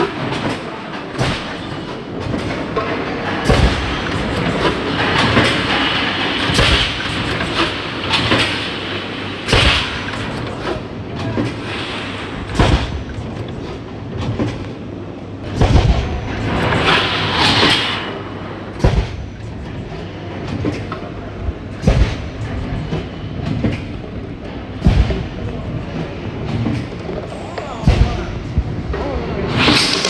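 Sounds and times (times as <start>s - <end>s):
heavy machine clunk: 0.0s - 14.7s
compressed air hiss: 11.6s - 12.5s.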